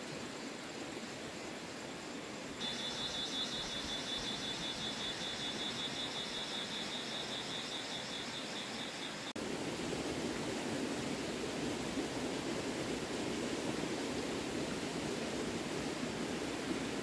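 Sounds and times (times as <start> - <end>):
steady hiss: 0.0 - 17.0
insect chirring: 2.0 - 9.4.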